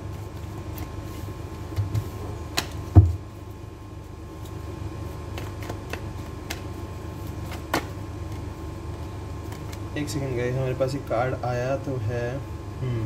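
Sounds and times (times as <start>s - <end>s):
cards being shuffled: 0.0s - 2.8s, 4.3s - 9.9s
steady low hum: 0.0s - 13.0s.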